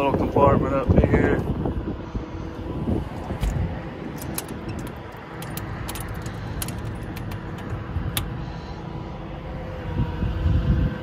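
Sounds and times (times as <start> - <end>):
diesel engine running: 0.0 - 11.0
metal latch clicking and rattling: 3.4 - 8.3.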